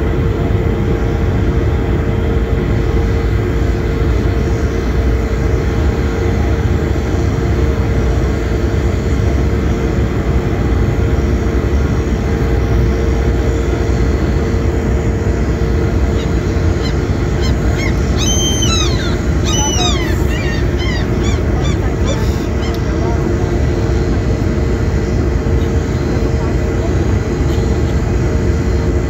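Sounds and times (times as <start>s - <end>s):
ship engine droning: 0.0s - 29.0s
birds calling: 15.8s - 23.4s.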